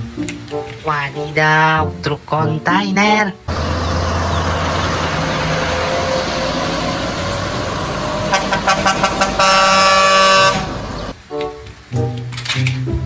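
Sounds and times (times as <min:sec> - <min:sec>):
truck engine passing: 0:03.5 - 0:11.2
truck air horn toots: 0:03.6 - 0:11.1.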